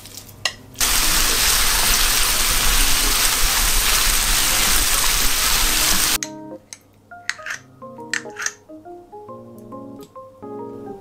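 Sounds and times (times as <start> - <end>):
meat sizzling in a hot pan: 0.8 - 6.2.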